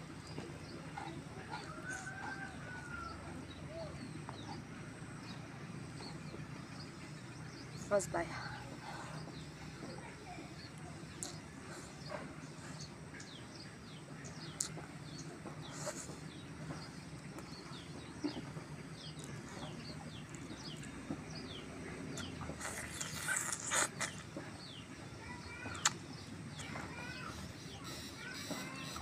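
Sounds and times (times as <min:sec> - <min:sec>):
birds chirping: 0:00.0 - 0:29.0
crunchy rustling eating: 0:08.4 - 0:29.0
mouth clicks: 0:14.4 - 0:16.4, 0:22.1 - 0:24.5, 0:25.6 - 0:26.7.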